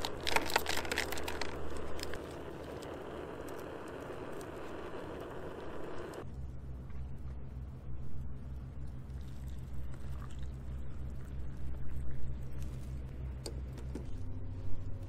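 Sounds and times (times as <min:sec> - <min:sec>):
hot water pouring into cup: 0:00.0 - 0:06.2
low steady hum: 0:00.0 - 0:15.0.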